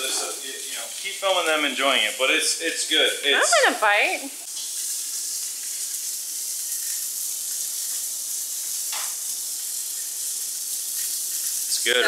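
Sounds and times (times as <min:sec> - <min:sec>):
fish sizzling in a hot pan: 0:00.0 - 0:12.0.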